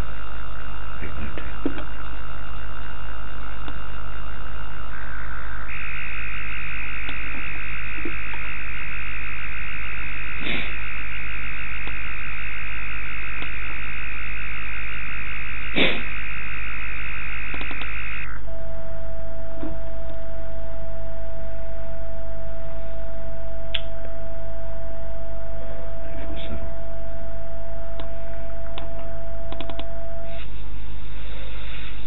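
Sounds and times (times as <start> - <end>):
low hum: 0.0 - 32.0
radio buzzing hiss: 0.0 - 32.0
steady mid-pitched tone: 0.0 - 32.0
short clicks: 17.5 - 18.2, 28.0 - 30.0.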